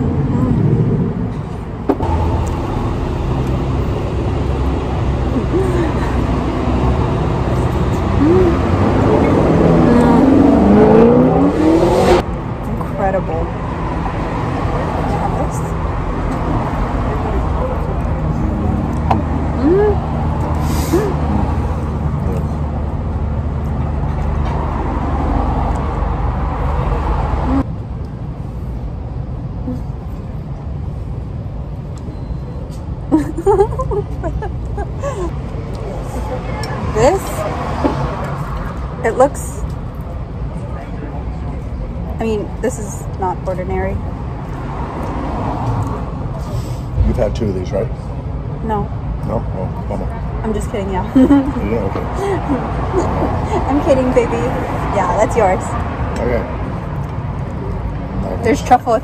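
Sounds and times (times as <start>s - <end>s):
outdoor background rumble: 0.0s - 59.0s
vehicle engine accelerating past: 2.0s - 12.3s.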